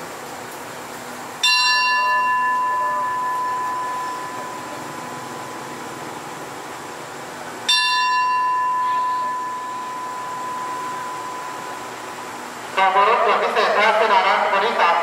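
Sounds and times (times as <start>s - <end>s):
platform bell ringing: 1.4s - 6.0s, 7.6s - 12.5s.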